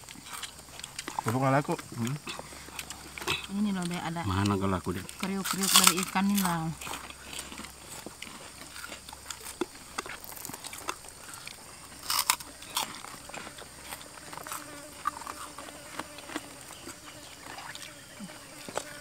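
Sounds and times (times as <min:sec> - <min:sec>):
crunching and chewing fried fish: 0:00.0 - 0:19.0.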